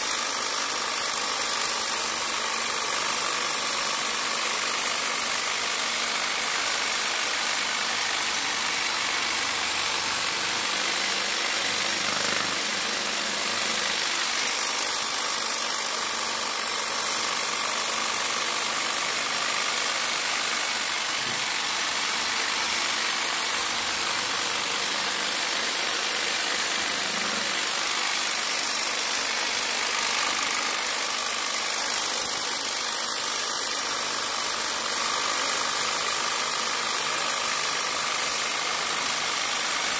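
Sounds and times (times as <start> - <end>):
jigsaw cutting foam: 0.0 - 39.9.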